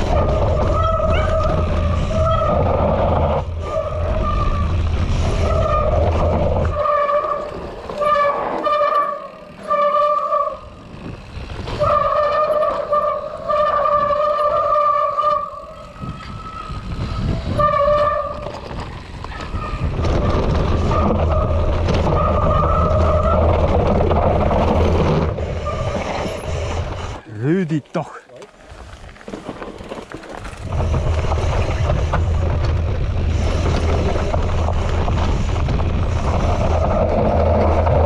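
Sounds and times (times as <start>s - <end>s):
bike disc brakes squealing: 0.0s - 2.8s, 3.6s - 23.6s, 25.4s - 27.2s
tyre rumble: 0.0s - 27.0s
wind: 0.0s - 38.0s.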